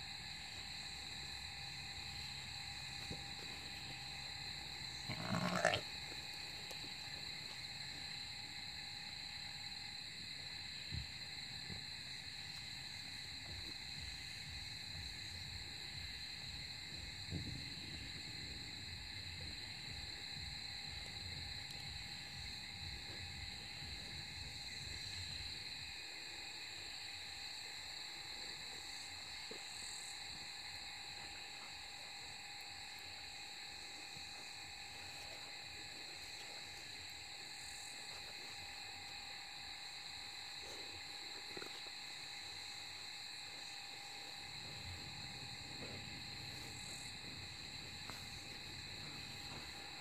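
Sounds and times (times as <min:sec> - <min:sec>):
night insects chirring: 0:00.0 - 0:50.0
sheep grunt: 0:05.0 - 0:05.9.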